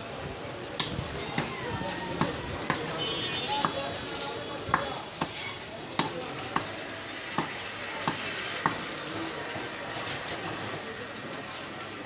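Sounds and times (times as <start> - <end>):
cleaver chopping on wooden block: 4.7 - 5.4, 6.0 - 6.7, 7.3 - 8.8.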